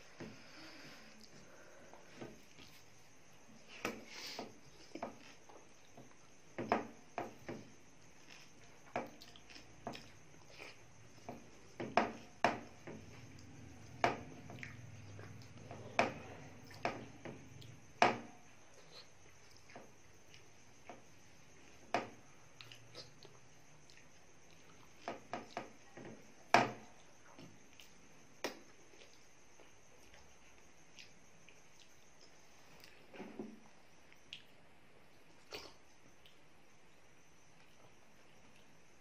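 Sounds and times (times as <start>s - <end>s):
wet chewing and squelching: 8.2s - 11.1s.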